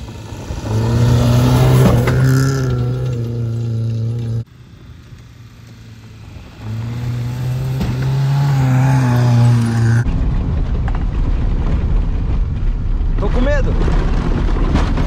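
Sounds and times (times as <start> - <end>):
car engine revving high: 0.0 - 4.4, 6.0 - 10.0
heavy low rumble: 0.0 - 15.0.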